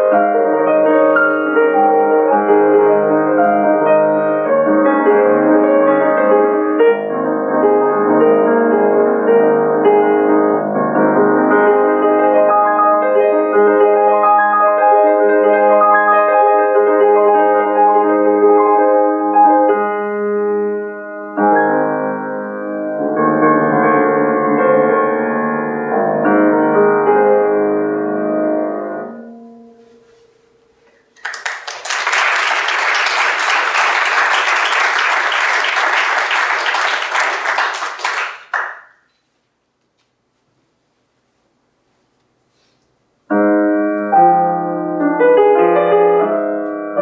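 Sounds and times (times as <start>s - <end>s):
grand piano playing: 0.0s - 30.3s, 31.9s - 38.3s, 43.3s - 47.0s
audience applause: 31.2s - 38.9s.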